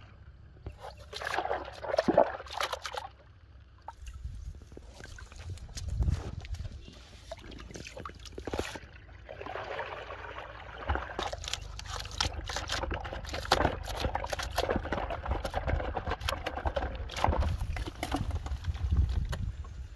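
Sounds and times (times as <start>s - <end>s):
water pouring from plastic tub: 0.7s - 3.2s, 7.3s - 19.3s
fish flapping and splashing: 10.8s - 19.3s.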